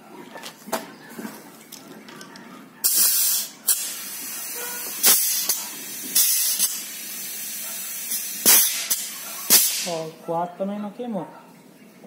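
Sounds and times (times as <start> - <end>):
compressed air hissing: 2.8 - 10.0
short blasts of air: 2.8 - 10.0.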